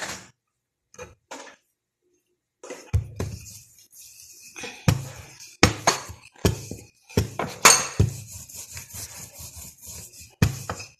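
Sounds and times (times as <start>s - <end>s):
kitchenware knocking and clinking: 4.9s - 8.2s.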